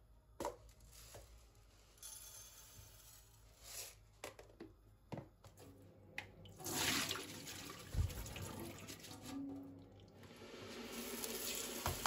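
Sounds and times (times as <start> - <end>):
tap water running into bowl: 10.9 - 12.0.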